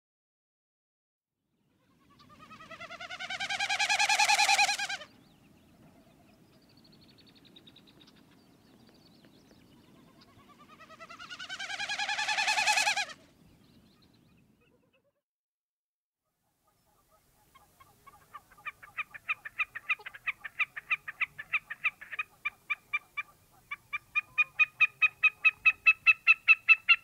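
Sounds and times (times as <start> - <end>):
snipe winnowing: 2.1 - 5.1, 10.1 - 13.2, 16.9 - 27.0.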